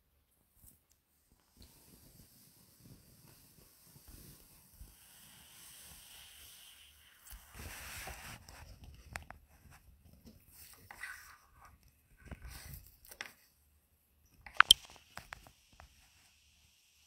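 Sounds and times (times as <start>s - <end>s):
soft rustling hiss: 0.1s - 17.0s
camera handling clicks and knocks: 14.5s - 14.9s.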